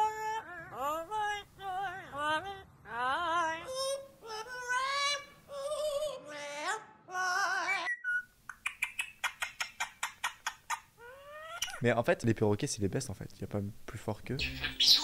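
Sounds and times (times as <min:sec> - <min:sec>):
parrot singing with vibrato: 0:06.3 - 0:11.8, 0:14.4 - 0:15.0
parakeet clicking kiss sounds: 0:08.5 - 0:10.8.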